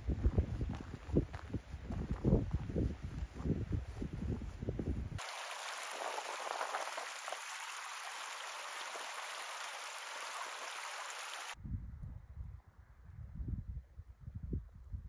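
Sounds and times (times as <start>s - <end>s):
stream babbling over rocks: 5.2s - 11.6s.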